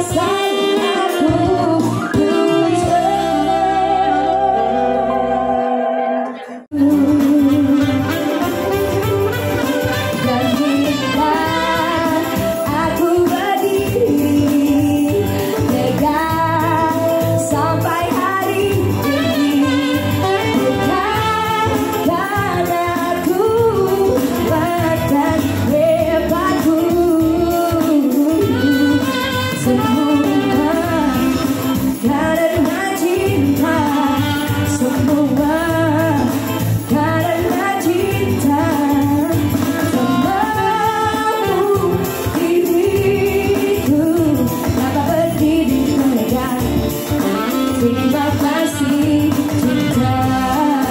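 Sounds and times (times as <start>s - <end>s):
electronic keyboard accompaniment: 0.0s - 50.9s
woman singing into microphone: 0.0s - 50.9s.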